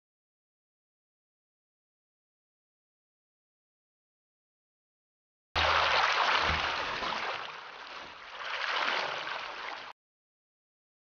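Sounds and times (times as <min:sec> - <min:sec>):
water splashing along kayak hull: 0:05.6 - 0:09.9.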